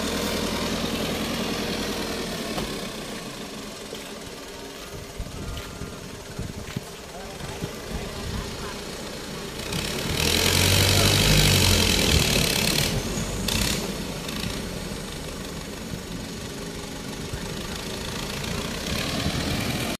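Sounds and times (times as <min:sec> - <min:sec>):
diesel tractor engine under load: 0:00.0 - 0:20.0.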